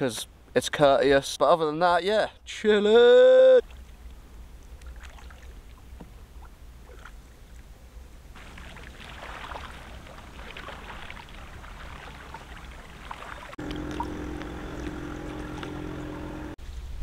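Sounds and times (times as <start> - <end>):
water splashing along canoe hull: 3.6 - 7.8, 8.4 - 16.6
water drips and knocks: 8.4 - 16.3
steady low rumble: 13.6 - 16.6.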